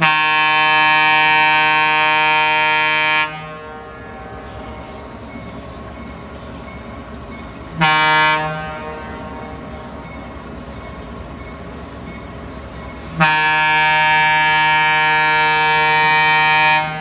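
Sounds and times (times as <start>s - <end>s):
locomotive air horn blasts: 0.0s - 5.0s, 7.8s - 9.7s, 13.2s - 17.0s
faint diesel engine rumble: 0.0s - 17.0s.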